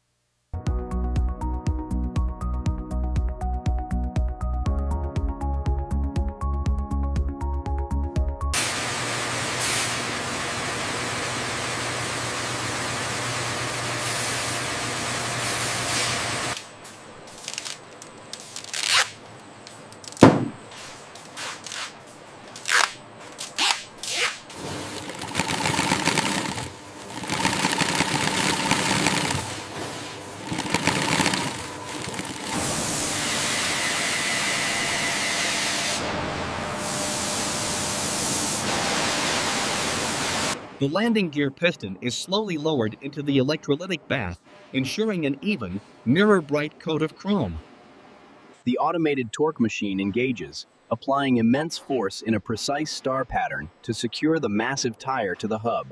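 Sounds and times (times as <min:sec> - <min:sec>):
factory machinery running: 0:24.6 - 0:38.1.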